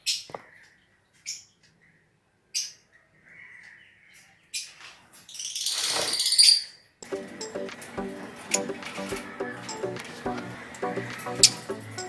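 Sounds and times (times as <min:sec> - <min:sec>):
lovebird chirping: 0:07.2 - 0:12.0.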